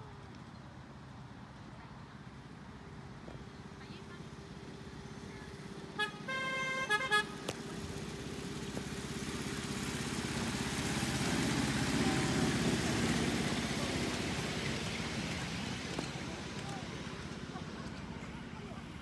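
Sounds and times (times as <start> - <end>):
locomotive horn toots: 5.9 - 7.6
train wheels rumbling on rails: 7.3 - 19.0.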